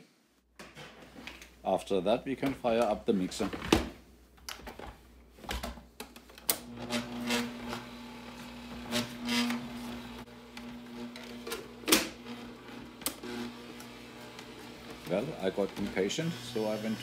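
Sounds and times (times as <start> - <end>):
beater scraping through dough: 6.7 - 17.0
stand mixer motor humming: 6.7 - 17.0.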